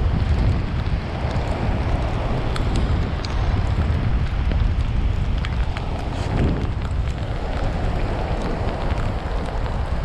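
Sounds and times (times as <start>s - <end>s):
surf breaking on beach: 0.0s - 10.0s
wind buffeting microphone: 0.0s - 10.0s
light ticks: 0.2s - 10.0s.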